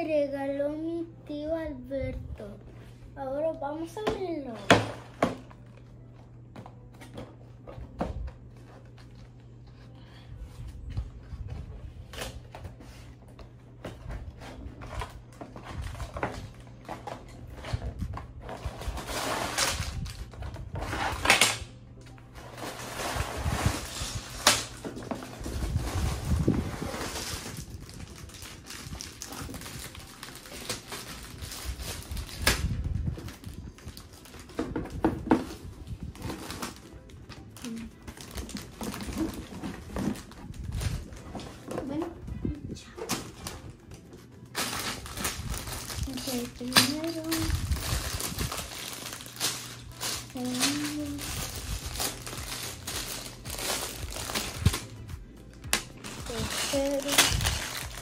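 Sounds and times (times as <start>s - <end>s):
plastic bags crinkling: 22.5s - 35.0s, 35.9s - 41.7s, 43.2s - 58.0s.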